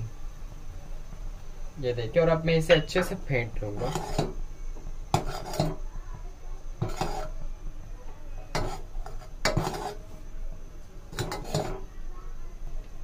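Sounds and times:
metal ladle knocking saucepan: 11.1 - 11.8.

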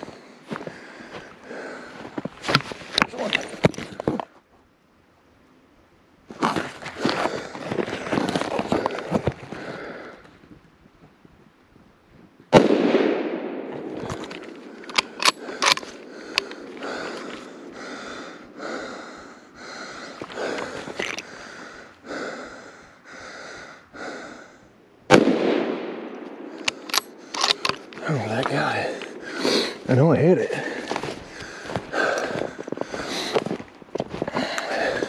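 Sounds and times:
footsteps crunching through snow: 0.0 - 4.2, 6.3 - 9.6, 27.9 - 35.0
rifle shots with echo: 12.5 - 13.9, 25.1 - 27.7
sharp clicks: 14.8 - 16.6, 26.1 - 28.1.

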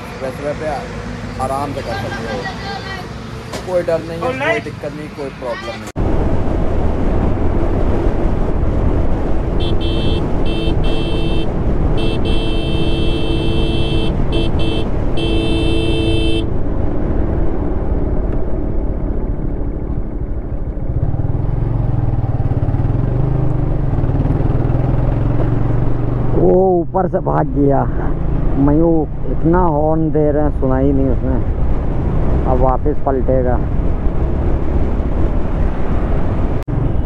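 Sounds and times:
motorcycle riding at speed: 6.0 - 26.8, 27.5 - 37.0
motorcycle horn blasts: 9.6 - 16.5.

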